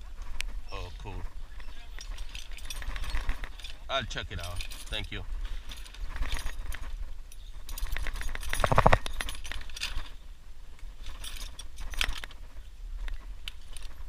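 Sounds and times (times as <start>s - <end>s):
small metal objects clinking: 1.5s - 10.2s, 11.0s - 12.4s.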